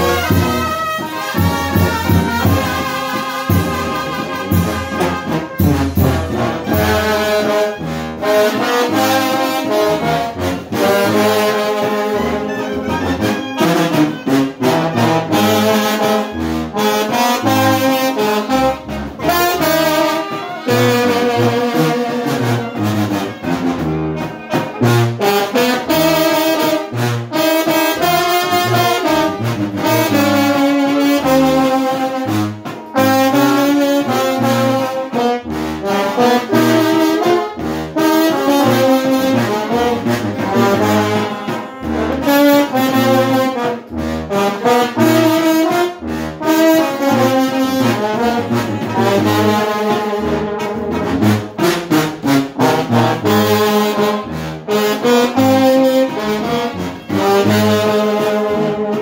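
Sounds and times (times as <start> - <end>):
snare and bass drum: 0.0 - 10.3, 27.7 - 35.4, 38.8 - 44.0
brass band playing: 0.0 - 59.0.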